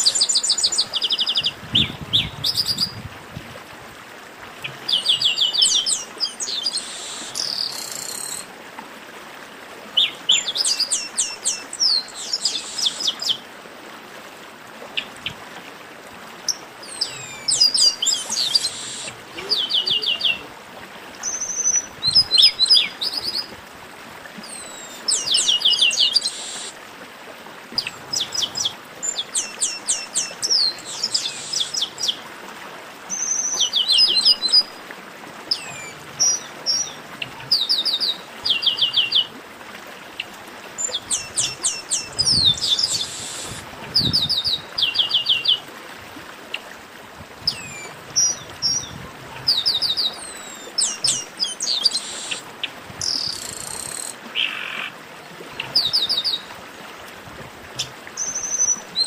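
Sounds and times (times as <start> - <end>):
birds singing whistled notes: 0.0 - 3.0, 4.9 - 8.5, 10.0 - 13.4, 16.5 - 20.4, 21.2 - 23.5, 24.4 - 26.8, 27.8 - 32.2, 33.1 - 34.7, 40.8 - 45.6, 47.5 - 52.4, 53.0 - 54.9, 55.8 - 56.4, 58.2 - 59.0
steady background hiss: 15.8 - 32.6, 39.6 - 43.8.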